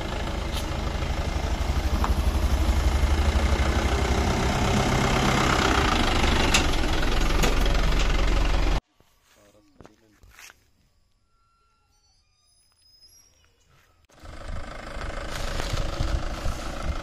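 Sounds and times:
vehicle engine rumbling: 0:00.0 - 0:08.8, 0:13.3 - 0:17.0.

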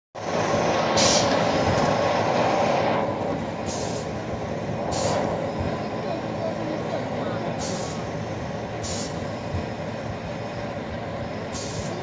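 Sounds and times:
machine mechanical rumble: 0:00.2 - 0:12.0
short hissing bursts: 0:03.6 - 0:04.1, 0:04.9 - 0:05.3, 0:07.6 - 0:08.1, 0:08.8 - 0:09.2, 0:11.5 - 0:12.0.

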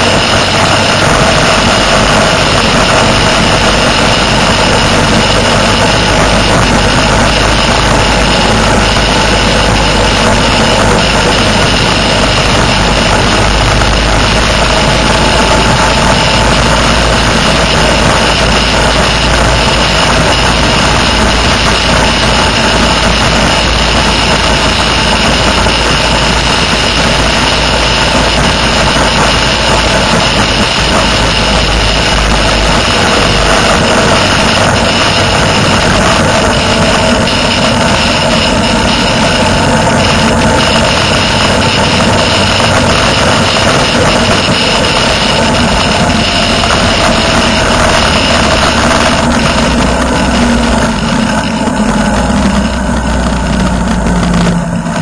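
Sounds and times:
motorcycle engine cruising: 0:00.0 - 0:55.0
wind rush: 0:00.0 - 0:55.0.

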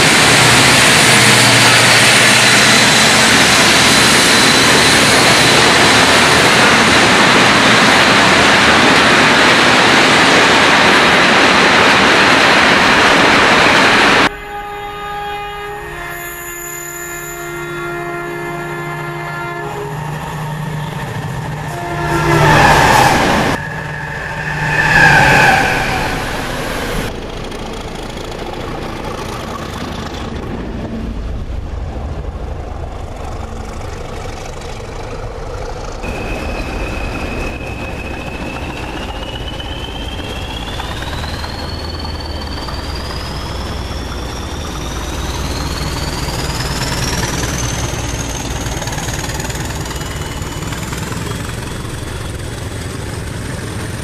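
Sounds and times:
locomotive passing at speed: 0:00.0 - 0:14.6, 0:18.6 - 0:54.0
diesel locomotive engine drone: 0:00.0 - 0:54.0
turbocharger whistle: 0:14.3 - 0:27.1, 0:36.0 - 0:48.6.

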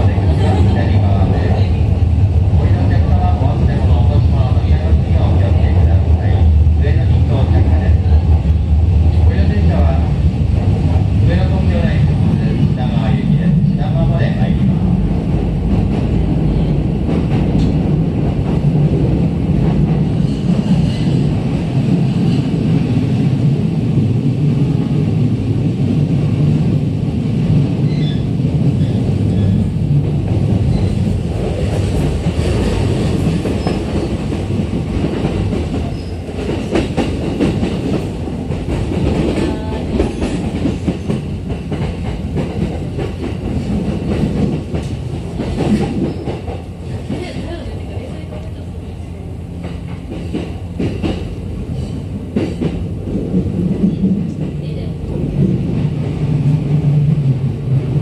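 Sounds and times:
train wheels rumbling on rails: 0:00.0 - 0:58.0
train clattering over rail joints: 0:27.8 - 0:48.5, 0:49.6 - 0:54.6.

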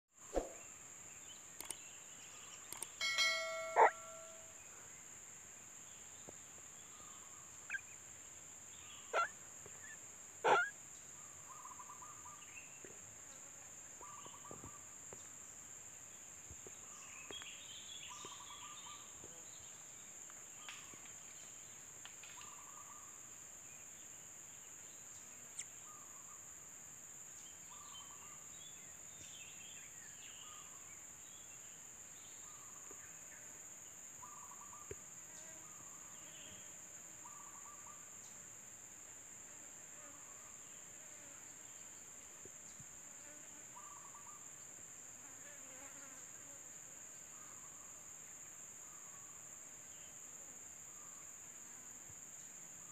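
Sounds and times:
sharp clicks: 0:01.6 - 0:01.8, 0:02.7 - 0:03.0
short soft calls: 0:02.7 - 0:04.6.

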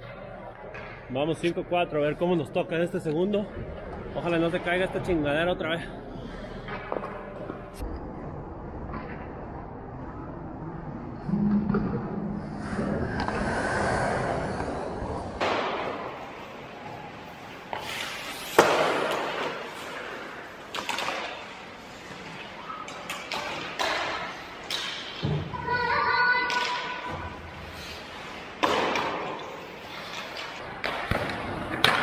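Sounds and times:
hockey sticks and puck clacking: 0:06.5 - 0:07.8, 0:13.1 - 0:32.0
skate blades scraping ice: 0:16.1 - 0:25.2, 0:26.5 - 0:30.8.

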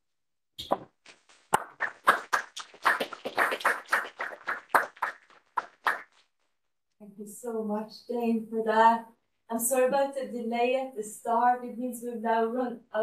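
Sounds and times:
small group clapping: 0:00.6 - 0:06.3.

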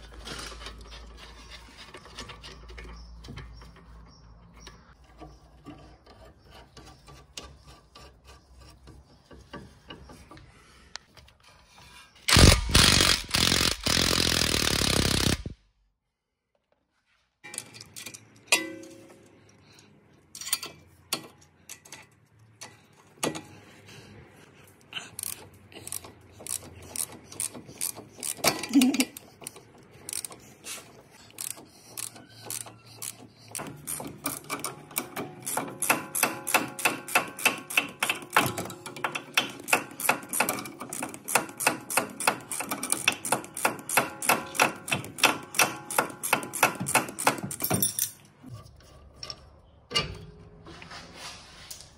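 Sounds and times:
hand ratchet clicking: 0:12.3 - 0:15.5, 0:25.1 - 0:47.9.

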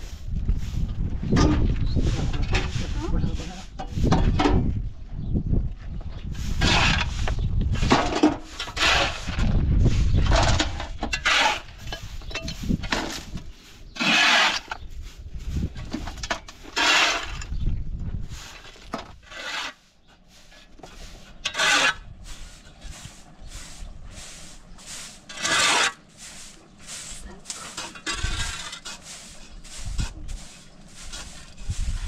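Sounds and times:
hand tool rasping strokes: 0:08.4 - 0:09.4, 0:10.4 - 0:12.8, 0:14.0 - 0:14.8, 0:16.0 - 0:17.5, 0:18.4 - 0:32.0.

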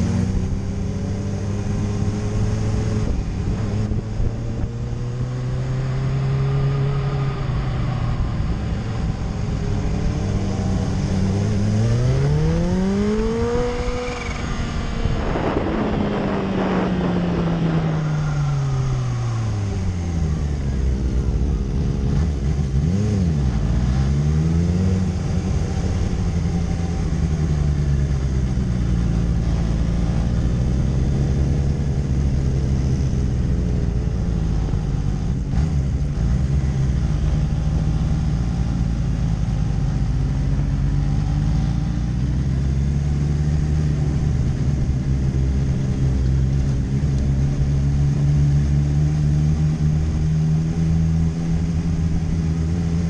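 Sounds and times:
motorcycle engine: 0:00.0 - 0:53.0
wind buffeting on microphone: 0:13.4 - 0:20.0.

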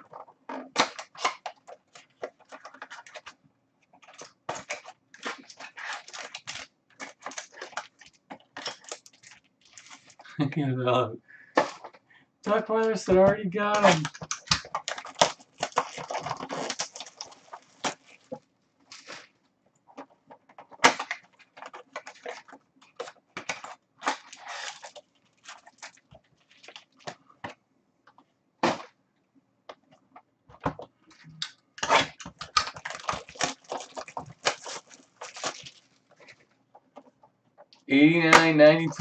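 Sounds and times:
foil wrappers crinkling and tearing: 0:00.1 - 0:03.4, 0:04.0 - 0:10.4, 0:13.6 - 0:19.3, 0:20.0 - 0:27.2, 0:31.8 - 0:36.4, 0:38.4 - 0:39.0
cards being shuffled: 0:11.6 - 0:19.3, 0:38.1 - 0:39.0.

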